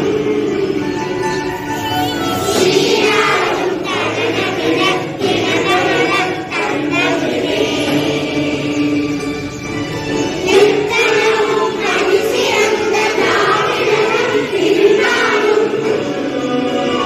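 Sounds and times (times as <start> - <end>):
group singing in unison: 0.0 - 17.0.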